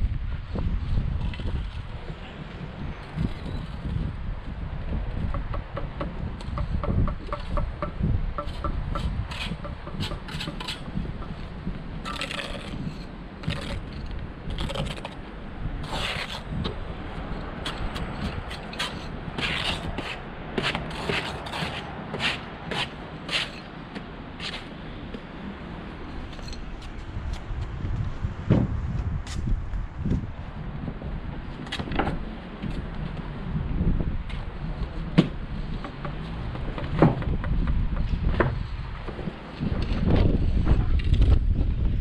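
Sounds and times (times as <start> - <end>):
wind rumbling on microphone: 0.0 - 42.0
trowel scraping on stone: 8.4 - 10.9, 12.0 - 15.2, 15.8 - 16.5, 17.6 - 23.7.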